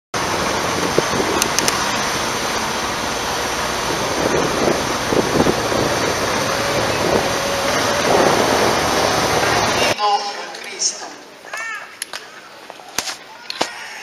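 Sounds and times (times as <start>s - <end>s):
motorcycle engine on cobblestones: 0.2s - 10.0s.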